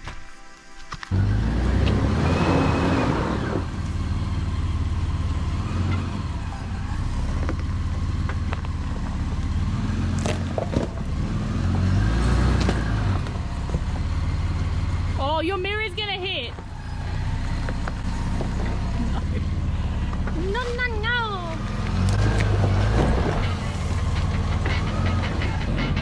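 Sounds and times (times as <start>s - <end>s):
car engine running at low revs: 1.1s - 26.0s
tyres crunching on loose stones: 7.0s - 11.3s, 16.5s - 26.0s
rocks knocking under wheels: 7.2s - 11.2s, 16.5s - 26.0s.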